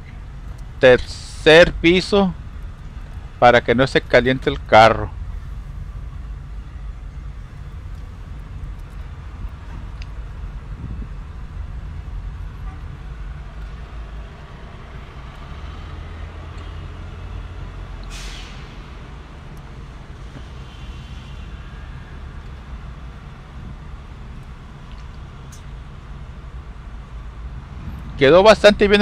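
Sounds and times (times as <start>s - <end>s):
car engine and road rumble: 0.0s - 29.0s
short hiss: 18.1s - 19.0s.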